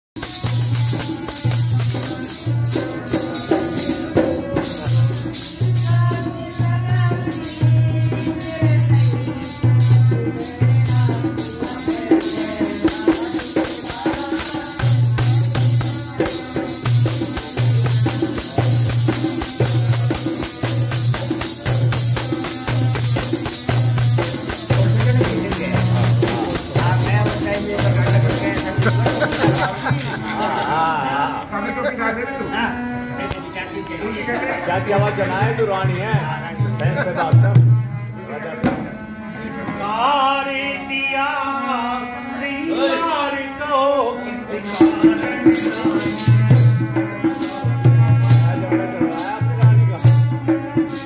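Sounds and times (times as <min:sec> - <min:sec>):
drum steady beat: 0:00.2 - 0:30.2, 0:44.7 - 0:51.0
jingling percussion: 0:00.2 - 0:30.7, 0:44.5 - 0:51.0
harmonium melody: 0:00.2 - 0:51.0.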